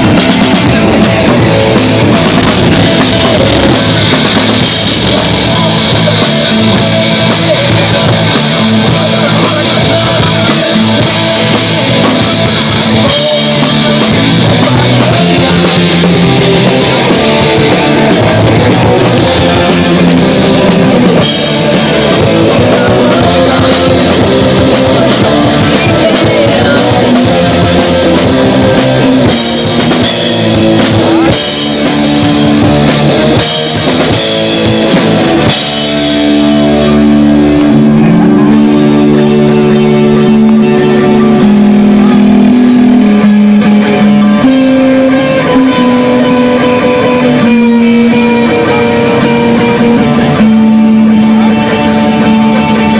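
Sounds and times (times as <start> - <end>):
bass guitar: 0.0 - 52.9
drum kit: 0.0 - 52.9
electric guitars: 0.0 - 52.9.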